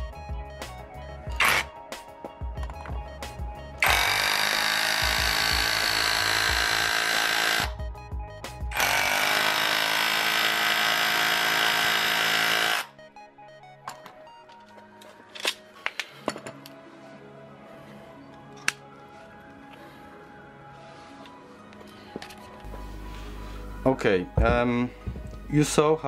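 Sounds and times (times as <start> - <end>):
hammer drill chipping stone: 3.8 - 7.8, 8.7 - 12.9.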